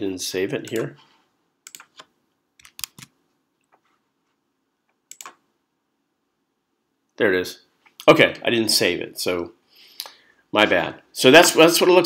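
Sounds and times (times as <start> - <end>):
keyboard and mouse clicks: 1.6 - 3.8, 4.9 - 5.4.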